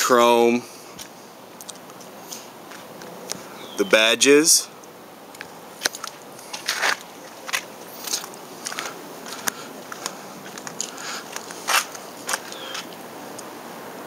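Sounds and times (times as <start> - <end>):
faint steady hiss: 0.0 - 14.0
footsteps with clicks and scuffs: 1.0 - 3.4, 5.4 - 13.4.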